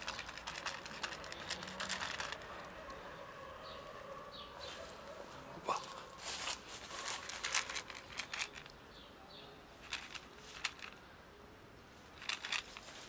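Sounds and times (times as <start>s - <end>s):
dry cat food rattling in plastic tub: 0.0s - 2.8s, 7.0s - 8.7s, 9.8s - 11.0s, 12.2s - 13.0s.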